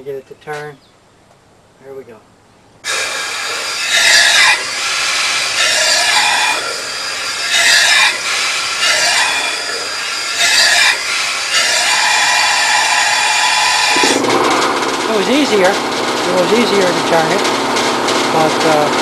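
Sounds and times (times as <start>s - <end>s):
compressed air hissing and spluttering: 2.8s - 18.4s
squeaky warbling: 2.9s - 14.3s.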